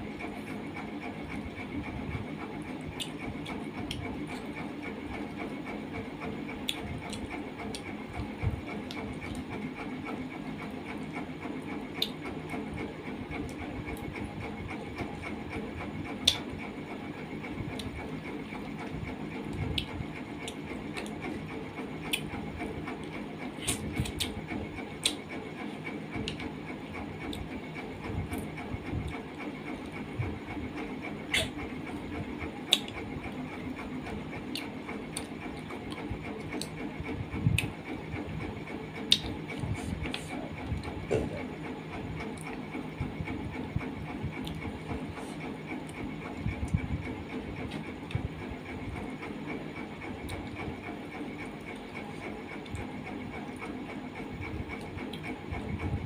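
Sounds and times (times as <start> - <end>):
steady background hum: 0.0 - 56.0
person chewing and lip-smacking: 2.6 - 4.6, 6.5 - 9.6, 16.0 - 16.6, 17.7 - 26.5, 27.2 - 27.6, 30.8 - 33.4, 34.4 - 36.8, 37.4 - 37.8, 39.0 - 41.6, 44.1 - 46.8, 54.6 - 55.3
sharp mouth clicks: 31.3 - 31.6.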